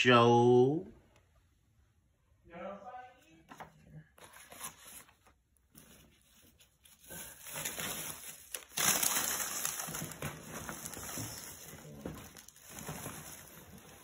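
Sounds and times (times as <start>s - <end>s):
soft packing rustles: 3.5s - 14.0s
plastic bag crinkling: 7.0s - 14.0s.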